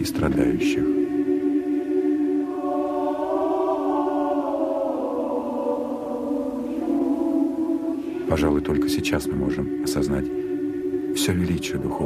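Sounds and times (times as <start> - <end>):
choir singing long notes: 0.0 - 12.0.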